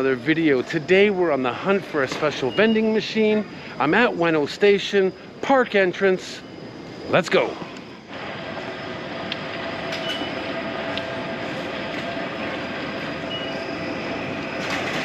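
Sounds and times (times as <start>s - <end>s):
station crowd din: 0.0s - 15.0s
short high beeps: 2.5s - 2.9s, 13.3s - 13.7s.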